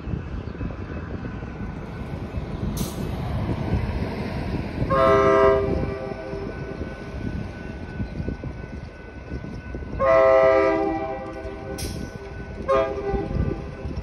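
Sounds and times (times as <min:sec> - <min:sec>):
train rumble: 0:00.0 - 0:14.0
locomotive air horn blast: 0:04.9 - 0:06.4, 0:10.0 - 0:12.0, 0:12.6 - 0:13.7.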